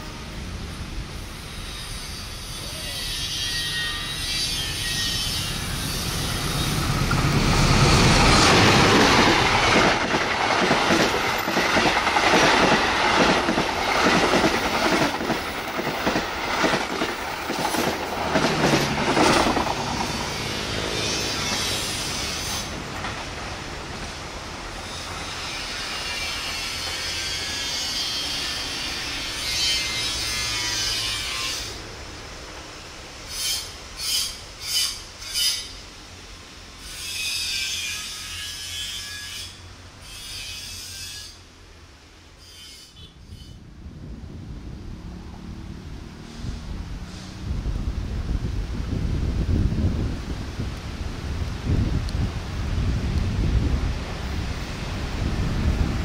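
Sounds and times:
diesel locomotive engine: 0.0s - 56.0s
train wheels clattering on rails: 4.5s - 24.2s.

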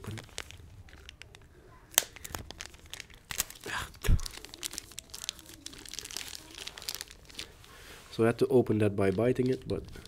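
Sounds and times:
packaging torn by teeth: 0.0s - 7.5s.

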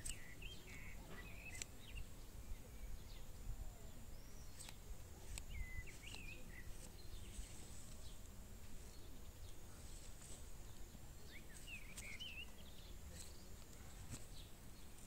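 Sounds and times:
birds chirping and whistling: 0.0s - 3.3s, 4.0s - 8.2s, 11.2s - 15.0s.

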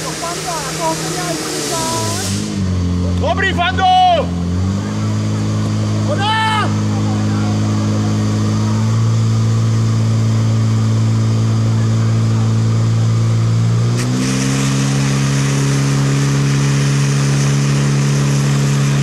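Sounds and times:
water jets hissing: 0.0s - 2.7s
pump engine running hard: 0.0s - 19.0s.

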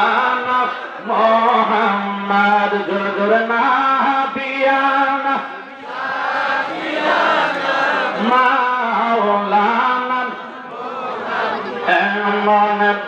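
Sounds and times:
man chanting: 0.0s - 5.7s, 8.1s - 10.6s, 11.8s - 13.0s.

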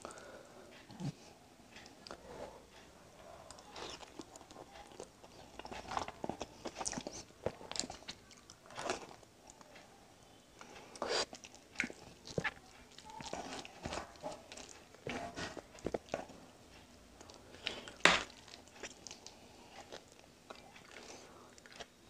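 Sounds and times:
wet chewing: 3.4s - 9.8s, 10.9s - 22.0s.

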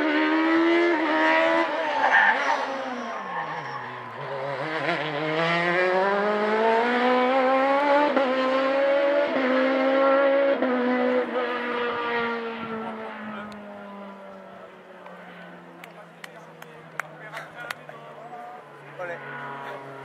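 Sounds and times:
rally car engine accelerating: 0.0s - 20.0s.

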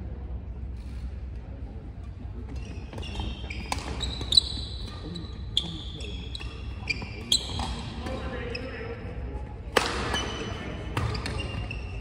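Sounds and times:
shoes squeaking on court floor: 2.5s - 9.0s, 9.9s - 12.0s
racket striking shuttlecock: 9.7s - 10.3s.

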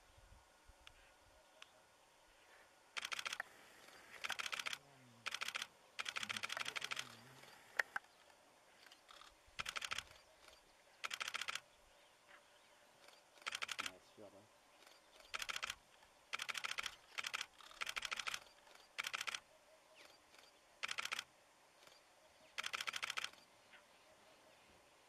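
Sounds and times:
camera shutter burst clicks: 3.0s - 8.0s, 8.8s - 11.6s, 13.0s - 14.0s, 14.8s - 23.5s.

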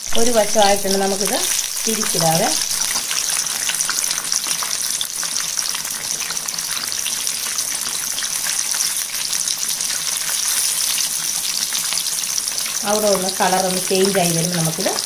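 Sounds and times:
chicken deep-frying in oil: 0.0s - 15.0s.

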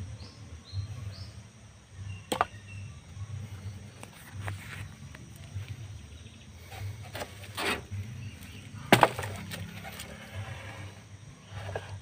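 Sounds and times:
soft scraping: 6.6s - 12.0s
blade chopping bamboo: 8.9s - 9.8s.

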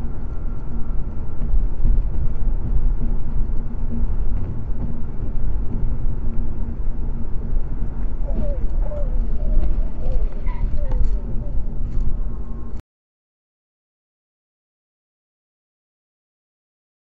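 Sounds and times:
car road and engine noise: 0.0s - 12.8s.

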